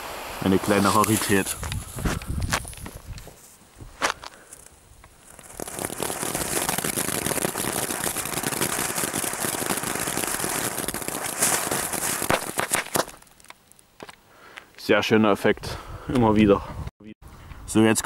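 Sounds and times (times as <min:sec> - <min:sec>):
firework hissing and crackling: 0:00.0 - 0:03.1, 0:04.5 - 0:13.5.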